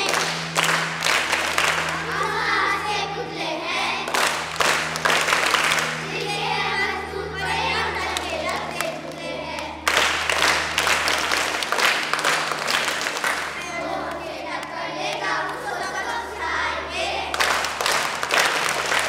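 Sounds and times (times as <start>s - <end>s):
people clapping: 0.0s - 2.6s, 4.0s - 6.4s, 8.0s - 16.2s, 17.3s - 19.0s
backing music track: 0.0s - 19.0s
children singing: 2.0s - 4.1s, 6.0s - 9.8s, 13.6s - 17.4s.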